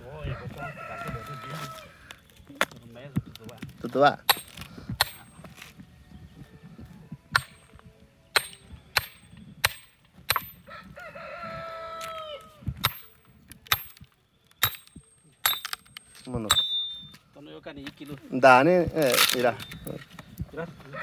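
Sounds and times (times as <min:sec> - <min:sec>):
rooster crowing: 0:00.1 - 0:02.2, 0:10.6 - 0:12.7, 0:20.8 - 0:21.0
axe chopping firewood: 0:04.2 - 0:05.4, 0:07.4 - 0:10.6, 0:12.8 - 0:15.8.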